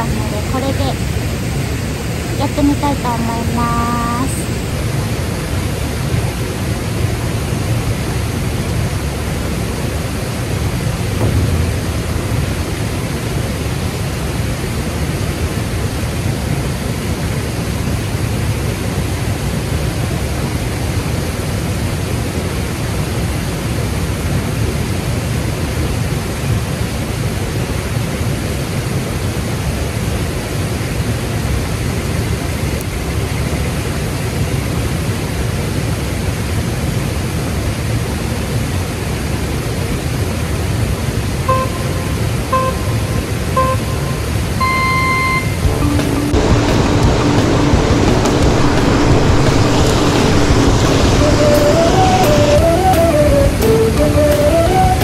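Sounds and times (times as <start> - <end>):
falling rain: 0.0 - 19.0, 45.6 - 55.0
mountain stream rushing: 45.6 - 55.0.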